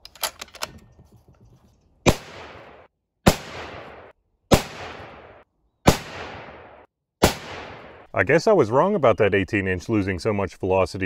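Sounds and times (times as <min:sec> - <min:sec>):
rifle shots with echo: 0:02.1 - 0:08.1.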